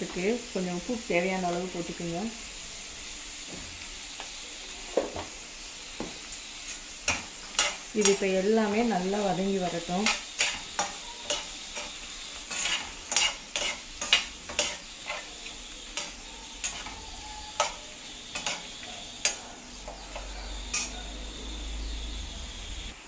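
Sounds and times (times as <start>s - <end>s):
food sizzling in oil: 0.0s - 23.0s
metal spoon scraping a pan: 6.8s - 21.5s.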